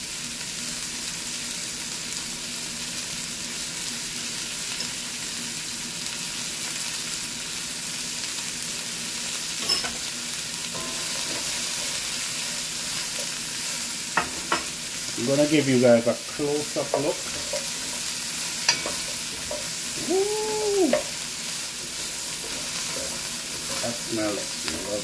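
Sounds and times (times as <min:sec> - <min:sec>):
vegetables sizzling in oil: 0:00.0 - 0:25.0
stirring vegetables: 0:10.7 - 0:25.0.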